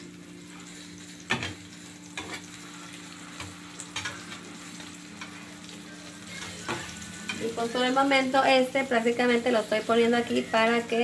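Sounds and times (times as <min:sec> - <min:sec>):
cheese sizzling in oil: 0:00.0 - 0:11.0
spatula scraping a pan: 0:00.5 - 0:05.5.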